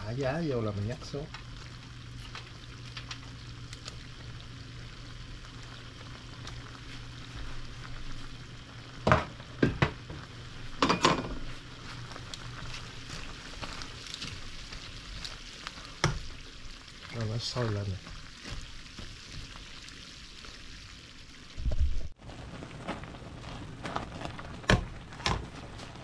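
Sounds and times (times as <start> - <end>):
soup bubbling in pot: 1.0 - 26.0
kitchen utensils clattering: 10.8 - 11.4.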